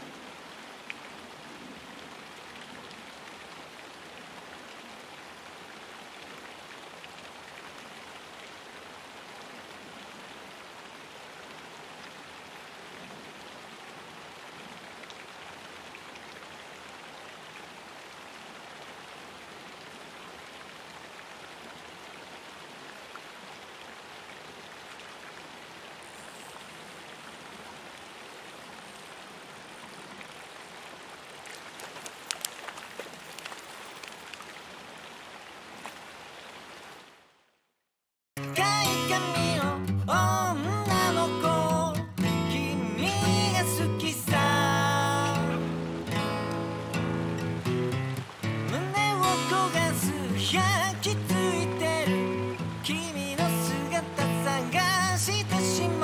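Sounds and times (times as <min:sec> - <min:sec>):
running water hiss: 0:25.7 - 0:35.1, 0:41.0 - 0:56.0.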